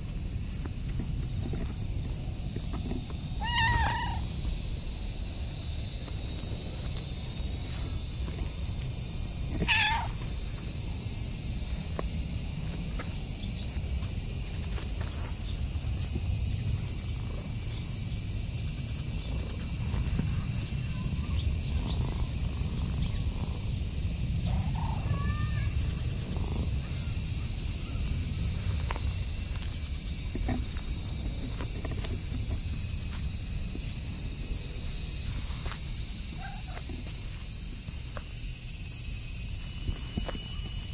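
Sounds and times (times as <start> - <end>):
high drone of insects: 0.0 - 40.9
cat meowing: 3.4 - 4.3, 9.6 - 10.2.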